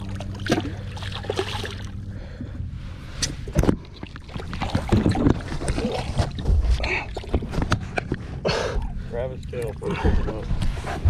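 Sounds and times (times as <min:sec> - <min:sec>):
water splashing against boat hull: 0:03.5 - 0:07.8.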